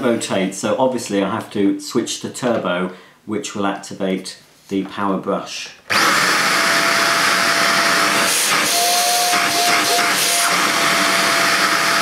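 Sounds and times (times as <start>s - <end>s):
handheld vacuum running: 5.9s - 12.0s.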